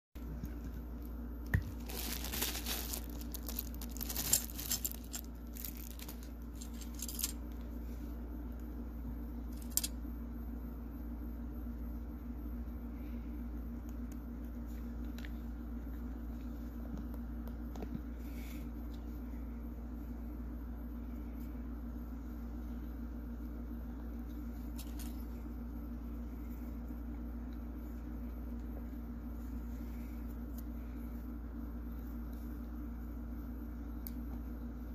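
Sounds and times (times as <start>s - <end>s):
low background hum: 0.2s - 34.9s
plastic packaging crinkling: 1.6s - 7.3s.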